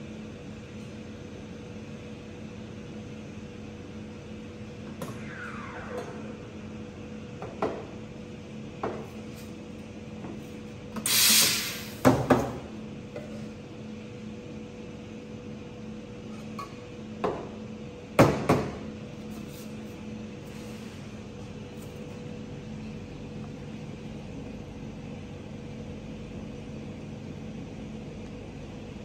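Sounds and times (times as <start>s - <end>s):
machine hum: 1.8s - 11.0s
steam wand hissing: 11.1s - 12.0s.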